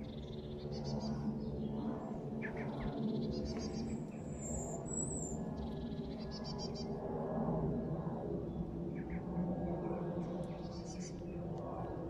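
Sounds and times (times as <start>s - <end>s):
distant jet engine rumble: 0.0s - 12.0s.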